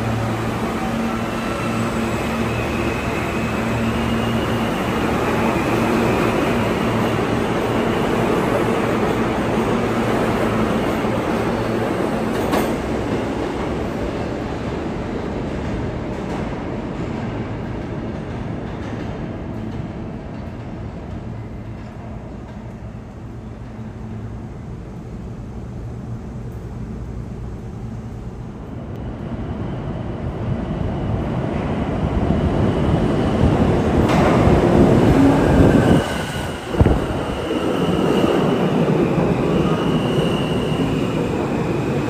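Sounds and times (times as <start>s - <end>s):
subway train rumbling: 0.0s - 42.0s.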